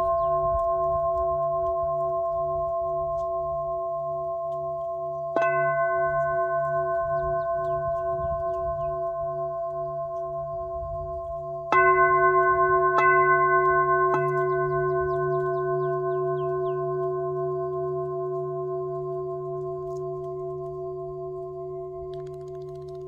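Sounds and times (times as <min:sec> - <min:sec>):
bowl ringing tones: 0:00.0 - 0:22.6
singing bowl struck with mallet: 0:11.5 - 0:19.4.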